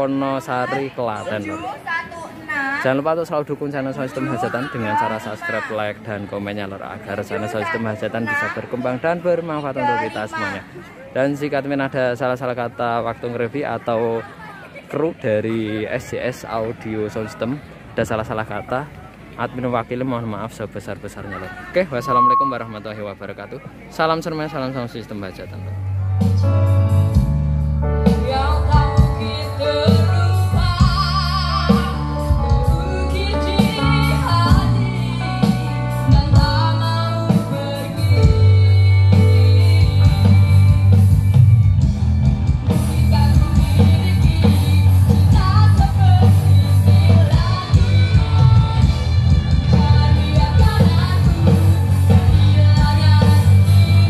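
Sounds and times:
song through loud sound system: 0:21.9 - 0:22.8, 0:25.5 - 0:54.0
heavy bass: 0:25.8 - 0:54.0.

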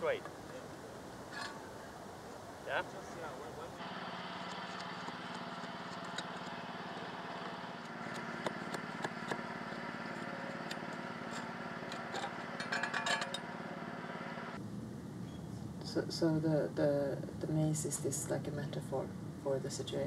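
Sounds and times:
small engine running: 0:03.8 - 0:14.6
sharp clicks and knocks: 0:07.4 - 0:13.5.

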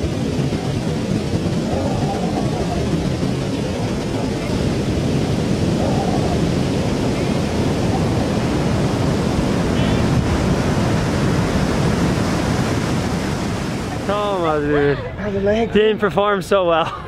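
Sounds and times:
wind rumbling on microphone: 0:00.0 - 0:15.2
heavy surf breaking: 0:00.0 - 0:17.0.

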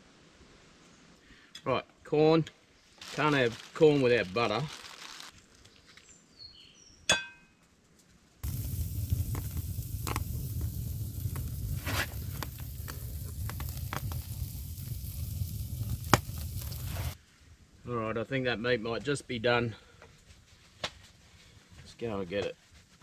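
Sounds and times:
steak sizzling on grill: 0:08.4 - 0:17.2
wood fire crackling: 0:08.4 - 0:17.2.

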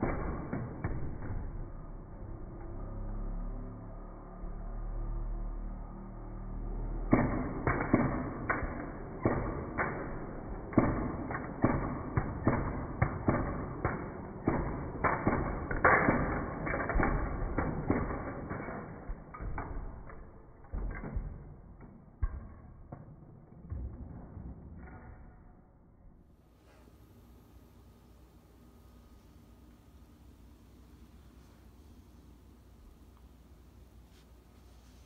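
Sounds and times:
toy balls hitting plastic bricks: 0:07.2 - 0:24.1.

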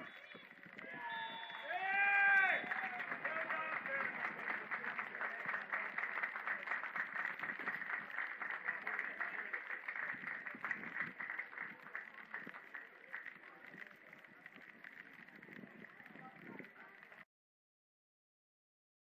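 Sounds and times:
spectators clapping: 0:00.0 - 0:17.3.

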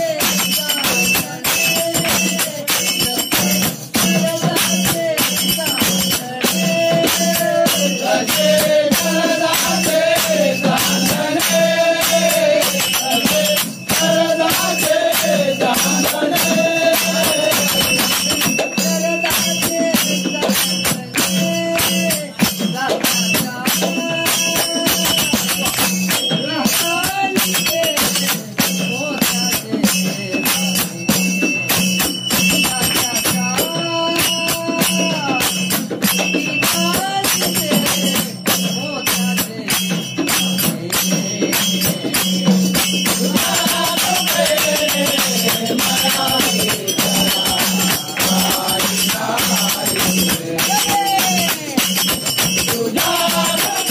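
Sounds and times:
group singing devotional song: 0:00.0 - 0:31.3, 0:32.4 - 0:53.9
hand percussion rhythm: 0:00.0 - 0:53.9.

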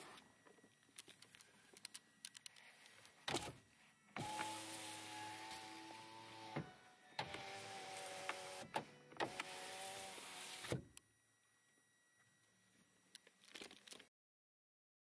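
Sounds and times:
power window motor whining: 0:04.2 - 0:10.9.

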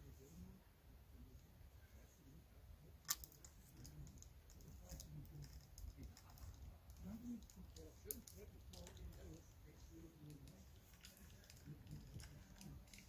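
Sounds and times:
antenna sections clicking and knocking: 0:03.0 - 0:09.4.

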